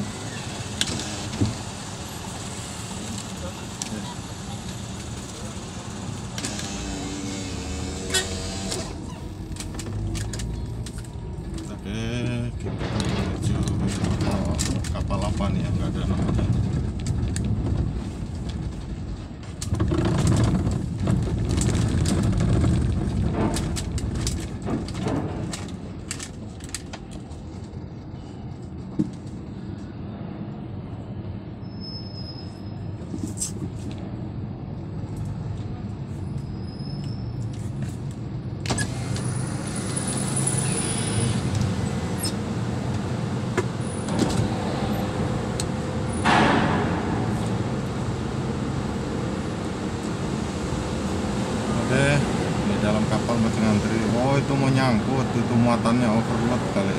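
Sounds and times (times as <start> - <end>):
low engine rumble: 41.3 - 56.9
sharp metallic knocks: 46.2 - 48.3.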